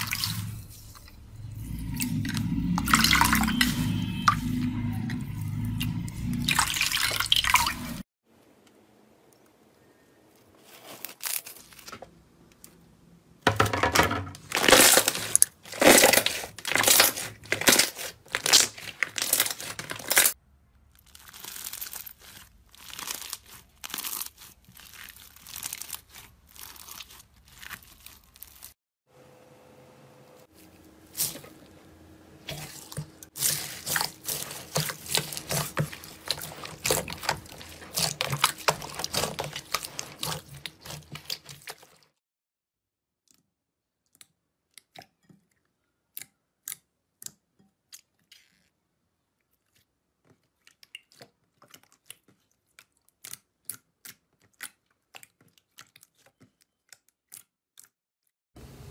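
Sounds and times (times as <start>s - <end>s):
slime squishing: 14.5s - 28.8s, 32.4s - 42.2s, 49.6s - 57.5s.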